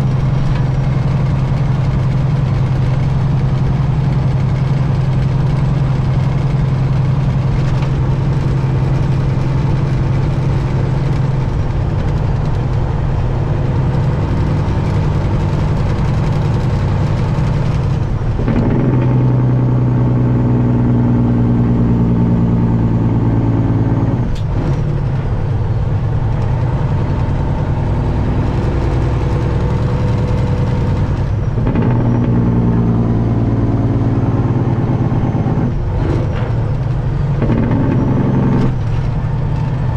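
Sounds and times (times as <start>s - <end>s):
diesel truck engine running: 0.0s - 39.9s.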